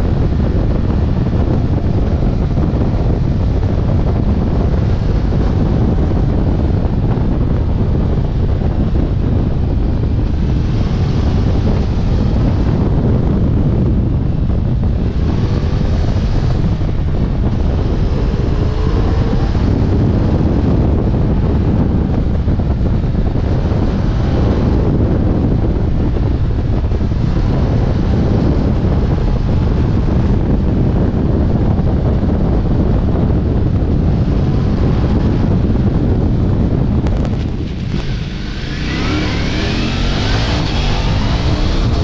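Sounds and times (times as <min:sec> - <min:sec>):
motorcycle engine: 0:00.0 - 0:24.9, 0:34.2 - 0:42.0
wind noise on microphone: 0:00.0 - 0:42.0.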